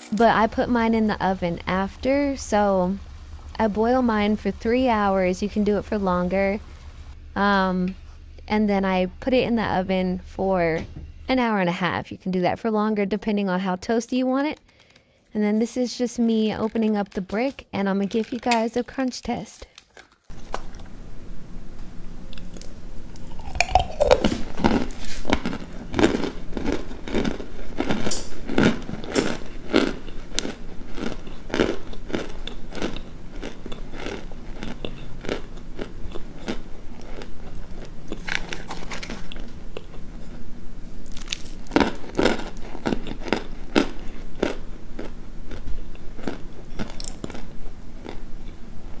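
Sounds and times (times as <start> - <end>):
crisp dry crunching bites: 22.4 - 40.4, 41.0 - 48.2.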